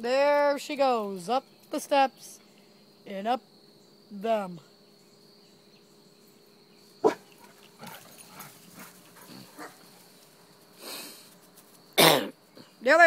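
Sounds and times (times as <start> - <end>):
crickets trilling: 0.0 - 13.0
dog barking: 7.0 - 7.3.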